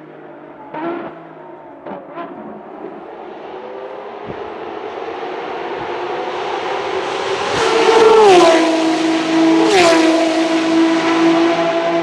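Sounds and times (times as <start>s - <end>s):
race cars passing by: 0.0s - 12.0s.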